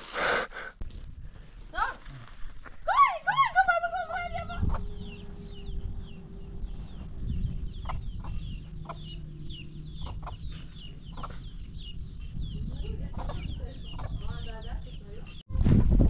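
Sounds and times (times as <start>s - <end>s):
low rumble: 3.4s - 16.0s
chickens clucking: 4.2s - 14.7s
chicks peeping: 4.2s - 15.4s.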